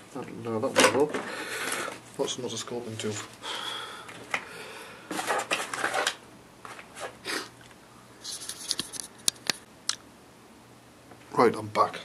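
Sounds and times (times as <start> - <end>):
rustling through clutter: 5.1 - 7.2.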